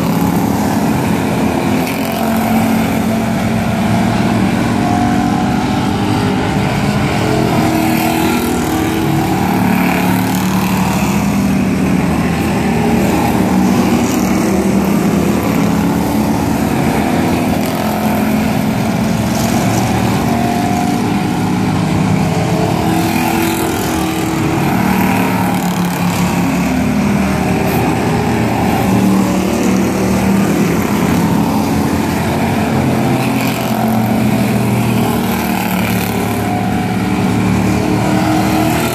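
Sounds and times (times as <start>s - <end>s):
race car engines passing: 0.0s - 38.9s.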